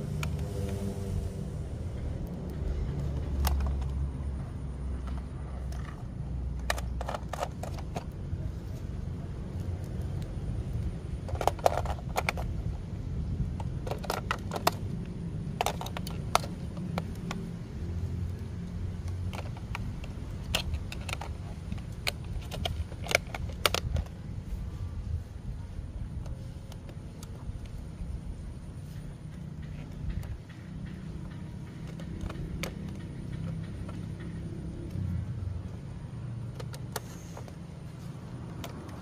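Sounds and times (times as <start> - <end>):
low rumble: 0.0 - 18.1
plastic clicks and taps: 29.3 - 35.0, 38.4 - 39.0.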